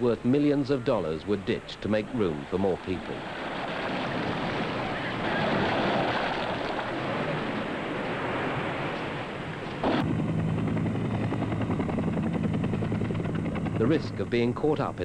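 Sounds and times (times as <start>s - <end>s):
sea noise: 0.0s - 12.3s
rushing wind: 1.0s - 15.0s
helicopter rotor chop: 9.8s - 15.0s
low engine hum: 9.9s - 15.0s.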